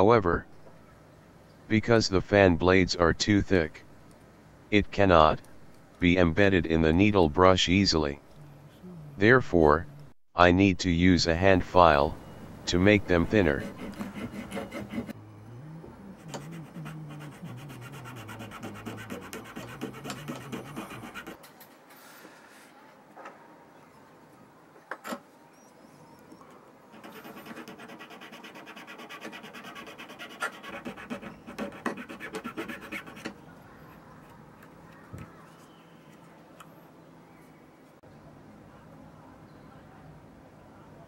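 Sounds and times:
hand file rasping: 0:13.4 - 0:15.2, 0:16.2 - 0:21.4, 0:26.9 - 0:33.4.

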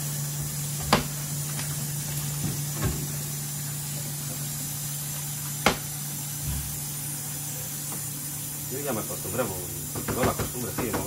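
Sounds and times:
onions sizzling in frying pan: 0:00.0 - 0:11.0
knocks on pan: 0:05.6 - 0:05.9, 0:09.9 - 0:11.0.

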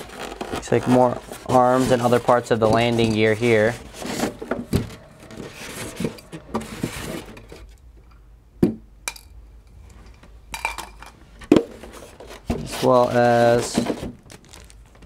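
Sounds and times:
styrofoam rubbing against cardboard: 0:00.8 - 0:04.4.

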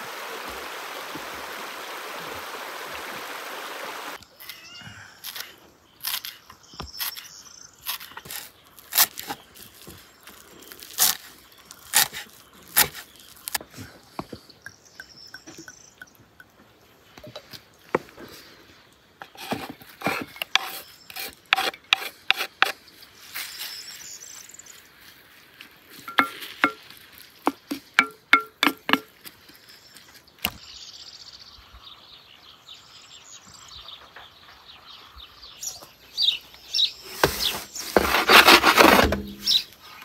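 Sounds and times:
wooden spoon stirring in clay pot: 0:26.1 - 0:26.8, 0:37.1 - 0:39.6.

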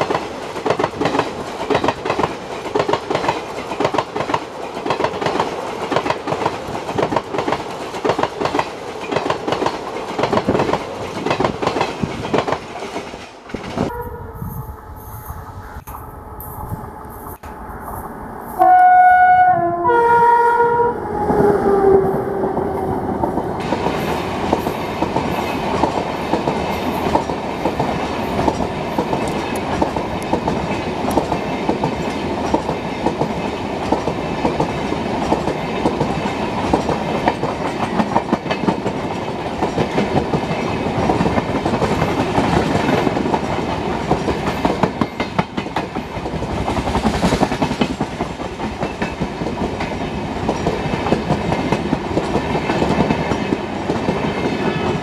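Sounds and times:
train wheels clickety-clack: 0:00.0 - 0:13.9, 0:23.2 - 0:55.0
train horn blasts: 0:13.9 - 0:17.3, 0:18.5 - 0:22.4.

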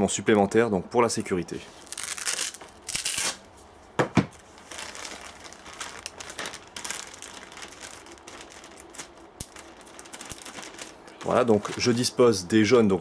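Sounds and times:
plastic bag crinkling: 0:01.8 - 0:03.5, 0:04.4 - 0:12.2.

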